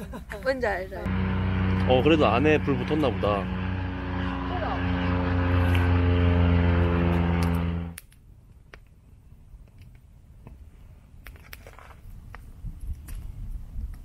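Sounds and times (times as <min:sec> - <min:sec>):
propeller aircraft engine droning: 0:01.0 - 0:08.0.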